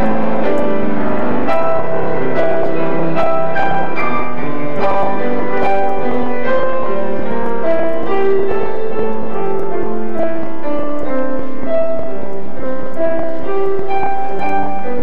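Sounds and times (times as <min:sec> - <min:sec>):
keyboard music with held notes: 0:00.0 - 0:15.0.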